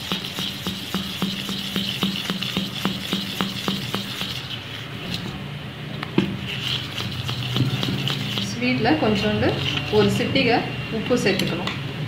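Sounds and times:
metal spoon knocking a steel bowl: 0.0s - 4.4s.

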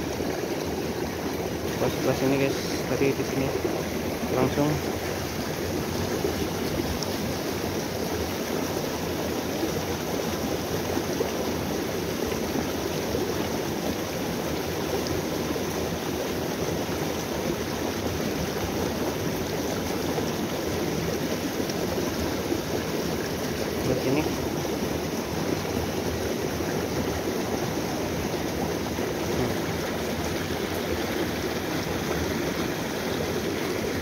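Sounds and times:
stream splashing over rocks: 0.0s - 34.0s.

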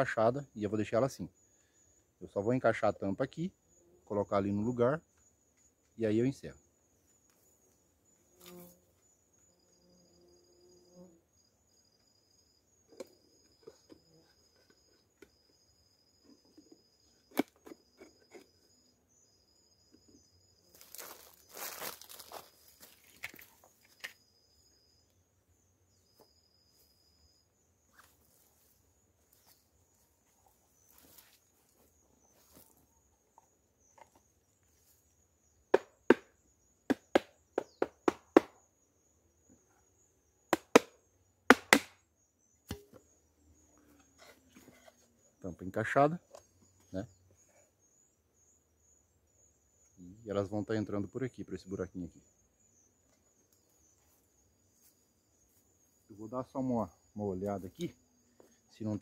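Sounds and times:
rustling in dry leaf litter: 20.7s - 23.0s
sharp knocks and taps: 36.9s - 38.6s.

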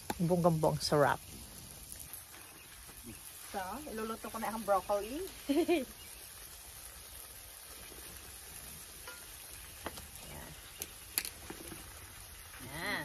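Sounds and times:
food sizzling on a grill: 0.0s - 13.0s.

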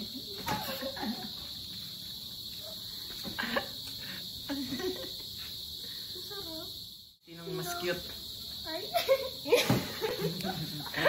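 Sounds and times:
crickets trilling: 0.0s - 11.0s
person laughing: 9.0s - 11.0s.

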